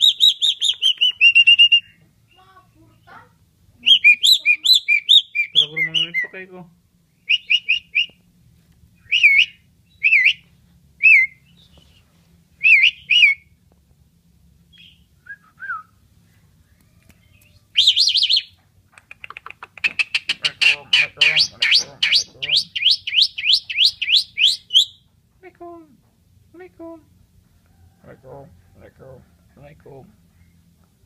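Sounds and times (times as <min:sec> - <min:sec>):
starling whistled calls: 0:00.0 - 0:02.0, 0:03.8 - 0:06.4, 0:07.2 - 0:08.2, 0:09.0 - 0:10.4, 0:11.0 - 0:12.0, 0:12.6 - 0:13.5, 0:17.2 - 0:18.5, 0:19.8 - 0:25.0.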